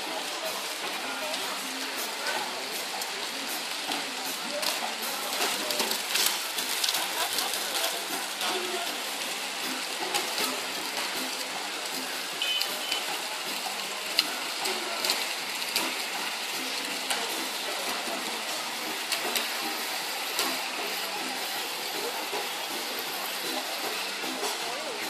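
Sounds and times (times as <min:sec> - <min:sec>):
faint voices: 0:00.0 - 0:25.0
outdoor crowd hiss: 0:00.0 - 0:25.0
paper clicks and rustles: 0:04.7 - 0:08.8.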